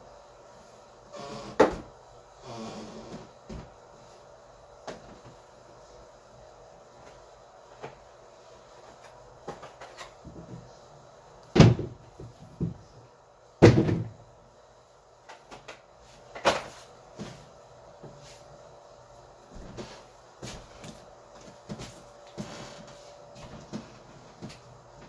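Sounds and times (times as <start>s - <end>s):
knocks and thuds of objects: 11.5s - 12.8s, 13.6s - 14.2s.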